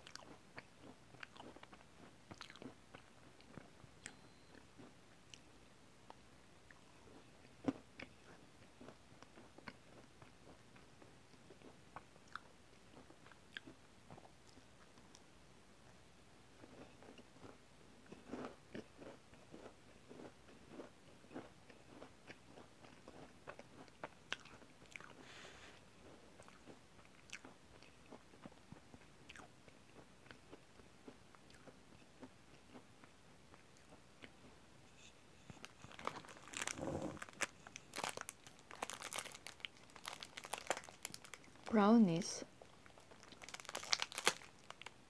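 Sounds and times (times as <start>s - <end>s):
chewing and biting: 0.0s - 4.2s, 16.6s - 25.3s, 26.0s - 34.5s, 35.5s - 41.7s, 42.6s - 44.9s
plastic bag crinkling: 35.6s - 41.8s, 43.0s - 44.9s.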